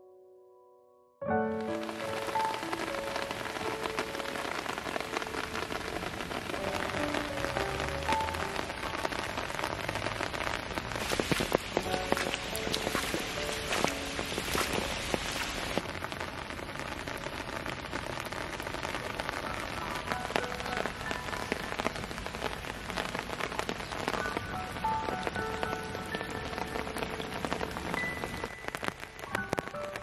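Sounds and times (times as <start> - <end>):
rain falling on puddles: 1.5 - 30.0.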